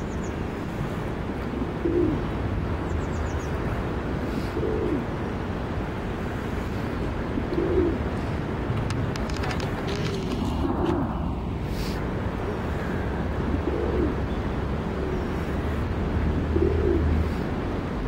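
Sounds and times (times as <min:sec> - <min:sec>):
pigeon cooing: 0:01.6 - 0:02.3, 0:04.4 - 0:05.2, 0:07.4 - 0:08.1, 0:13.5 - 0:14.2, 0:16.4 - 0:17.2.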